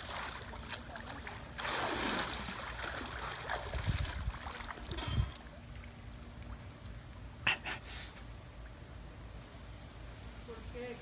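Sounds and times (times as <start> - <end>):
water splashing off a swimmer: 0.0 - 5.5
quiet water sounds: 0.0 - 10.9.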